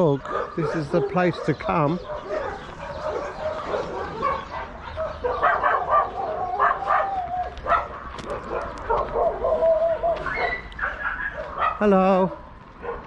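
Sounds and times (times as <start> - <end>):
dogs barking and yapping: 0.0 - 13.0
dog long held cry: 5.2 - 7.9, 8.9 - 11.8.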